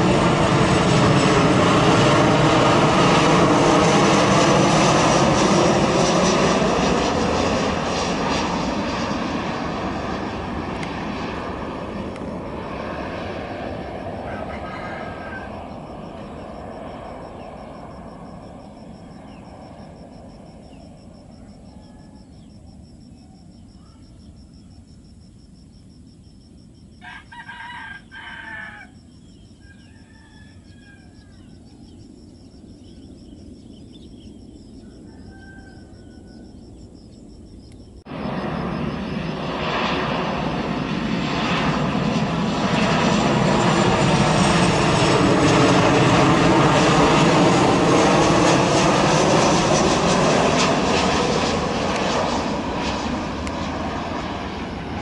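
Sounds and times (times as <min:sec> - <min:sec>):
jet engine noise: 0:00.0 - 0:55.0
rooster crowing: 0:14.0 - 0:16.0, 0:21.3 - 0:22.6, 0:27.0 - 0:31.9, 0:34.8 - 0:36.8.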